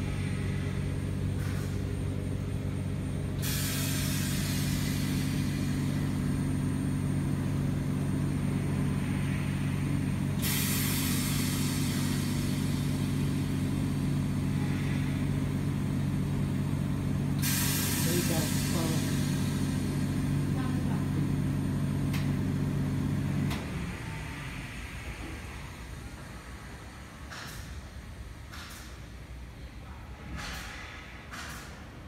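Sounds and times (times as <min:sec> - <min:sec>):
steady low hum: 0:00.0 - 0:31.7
gas hissing: 0:03.3 - 0:16.6, 0:17.2 - 0:20.8.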